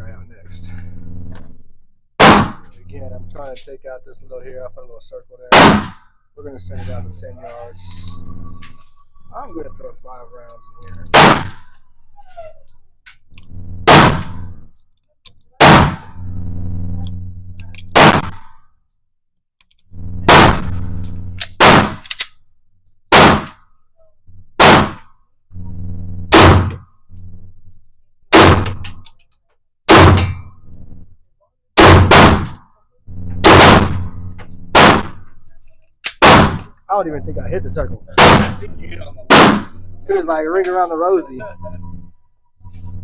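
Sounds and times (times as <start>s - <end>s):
low hum: 0.0s - 14.9s, 15.6s - 18.7s, 19.7s - 29.3s, 29.9s - 43.0s
handgun shots with ringing echo: 2.2s - 2.6s, 5.5s - 6.0s, 11.1s - 11.6s, 17.9s - 18.4s, 21.5s - 22.2s, 23.1s - 23.6s, 29.9s - 30.4s, 34.7s - 35.2s, 36.1s - 36.6s, 39.3s - 39.8s.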